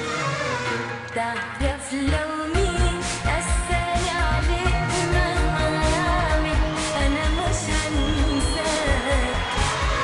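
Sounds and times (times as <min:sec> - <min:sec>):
woman singing: 0:01.1 - 0:10.0
band with steady bass beat: 0:02.6 - 0:10.0.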